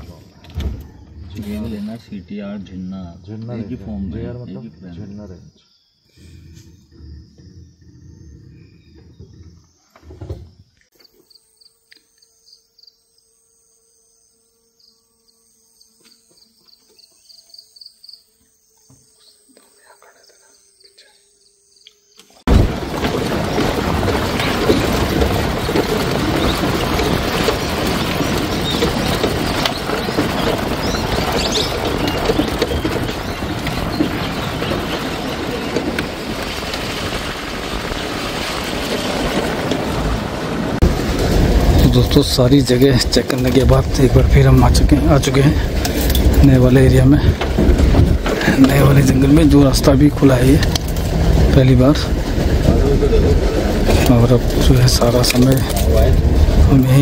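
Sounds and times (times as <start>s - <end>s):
insects chirping: 0.0s - 57.0s
vehicle engine and road noise: 22.6s - 57.0s.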